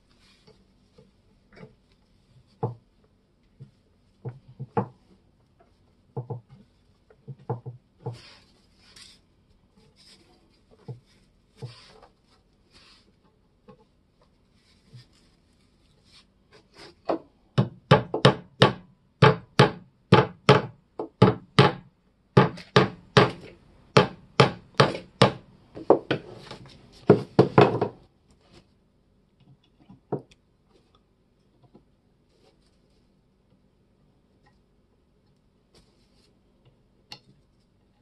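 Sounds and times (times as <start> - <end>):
hammer tapping nails into wood: 17.6 - 26.2.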